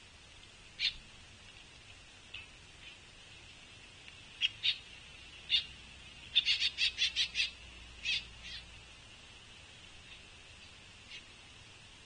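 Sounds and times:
woodpecker begging calls: 0.8 - 1.0, 4.4 - 8.7.

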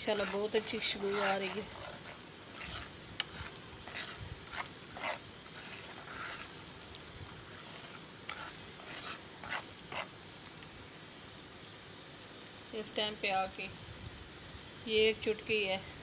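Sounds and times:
spoon scraping a frying pan: 0.0 - 10.1
faint frying sizzle: 0.0 - 16.0.

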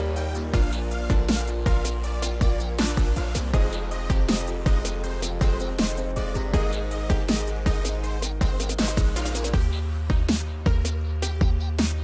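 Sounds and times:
electronic music with steady beat: 0.0 - 12.0.

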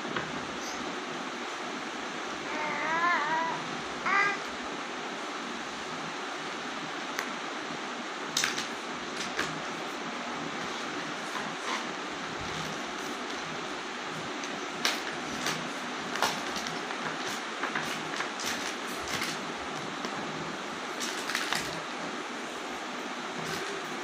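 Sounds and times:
steady background hiss: 0.0 - 24.0
taps clicks and rustles of toys: 8.4 - 9.6, 14.4 - 19.4, 21.0 - 21.8.

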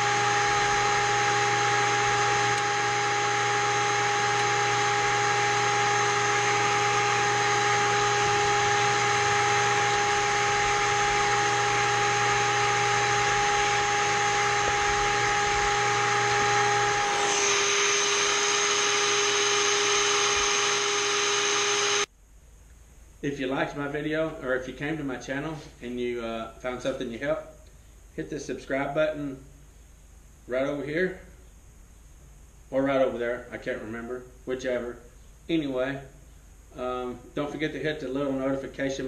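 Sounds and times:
carpet seaming tool motor whine: 0.0 - 22.1.

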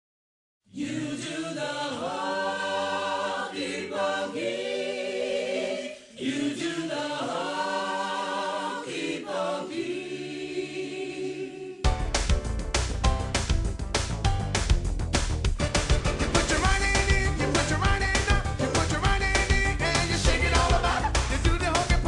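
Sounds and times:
choir singing a cappella: 0.7 - 11.9, 16.2 - 22.0
loud band music with drums: 11.9 - 22.0.

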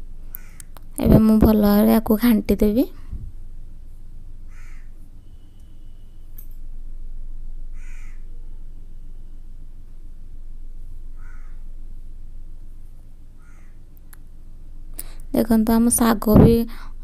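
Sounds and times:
steady low hum: 0.0 - 17.0
crow cawing: 4.5 - 4.9, 7.8 - 8.2, 11.2 - 11.6, 13.4 - 13.8.

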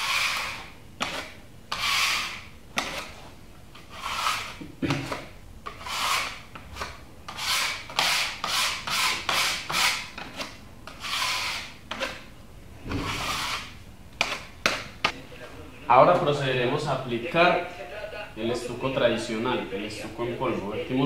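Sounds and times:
putty knife scraping wall: 0.0 - 3.2, 3.8 - 14.9.

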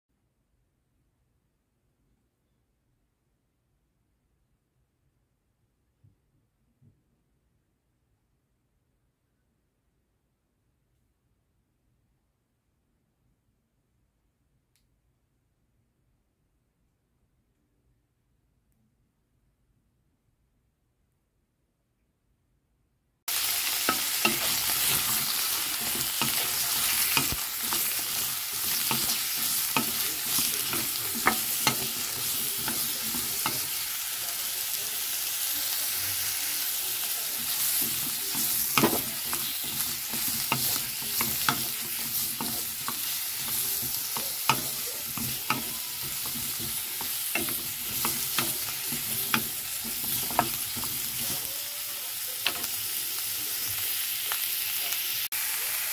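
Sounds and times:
vegetables sizzling in oil: 23.3 - 55.9.

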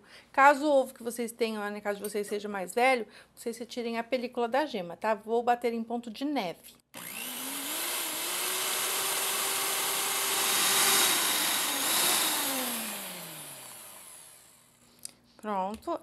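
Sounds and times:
electric mixer whipping: 7.0 - 14.8.

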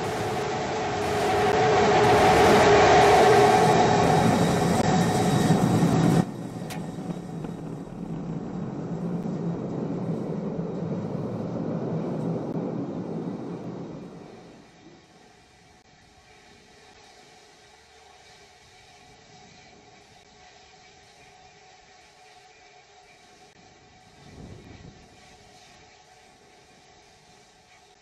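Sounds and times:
rocket engine roar: 0.0 - 15.0
quieter steady rumble: 3.8 - 15.0.

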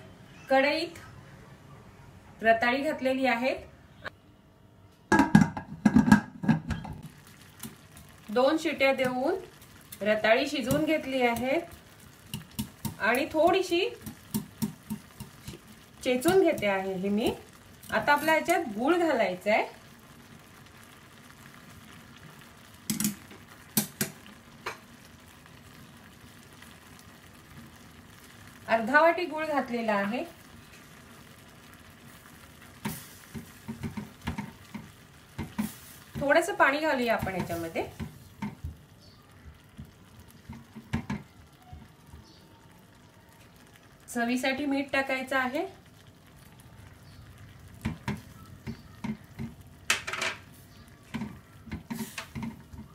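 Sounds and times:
wet stirring: 7.0 - 17.0, 47.2 - 52.9
water simmering with bubbling hiss: 7.0 - 52.9.

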